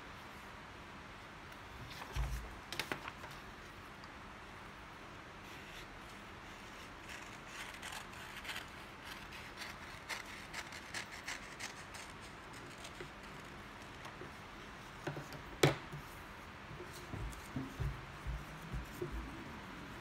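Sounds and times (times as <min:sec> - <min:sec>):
scissors snipping paper: 0:07.0 - 0:14.2.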